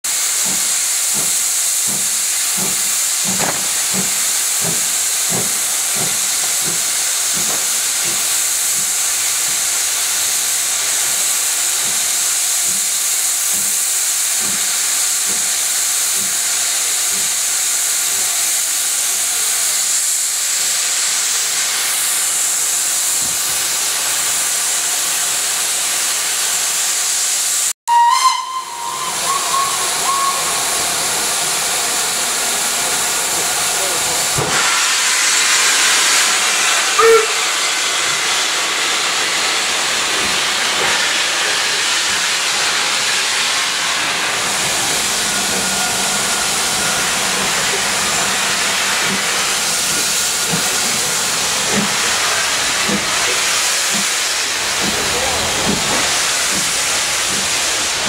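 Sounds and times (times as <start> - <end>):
steam hissing: 0.1 - 58.0
steam whistle: 27.9 - 31.1, 36.9 - 37.8.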